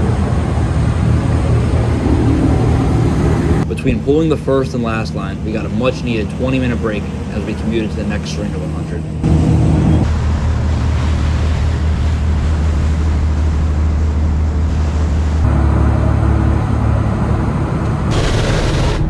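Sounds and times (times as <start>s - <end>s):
boat engine droning: 0.0s - 19.0s
rush of wake: 9.2s - 16.2s.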